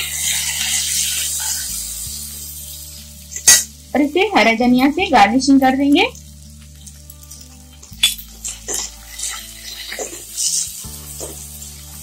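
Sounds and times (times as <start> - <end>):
faint sizzle: 0.0 - 12.0
soft background music: 0.0 - 12.0
spoon scraping a pan: 6.8 - 12.0.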